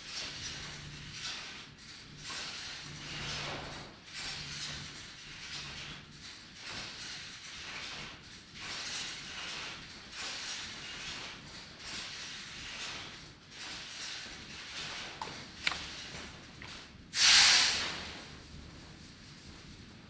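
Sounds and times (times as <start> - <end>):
fabric sleeves hissing and swishing: 17.2 - 18.3.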